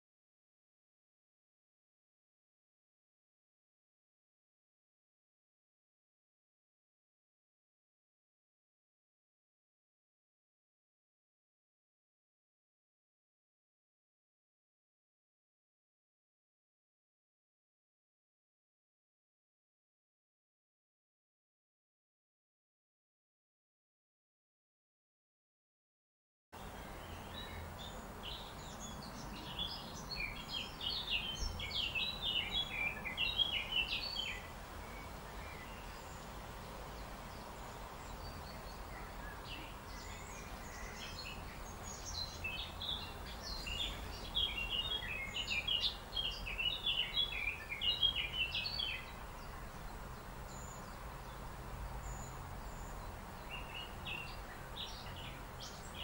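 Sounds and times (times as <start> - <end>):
songbirds chirping: 26.6 - 56.0.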